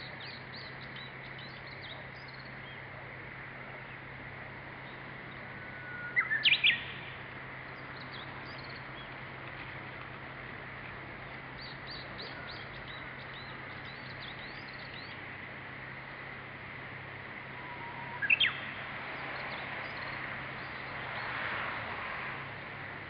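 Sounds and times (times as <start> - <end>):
bush warbler whistled song: 0.0 - 2.9, 4.8 - 9.2, 11.2 - 15.2, 17.5 - 21.6.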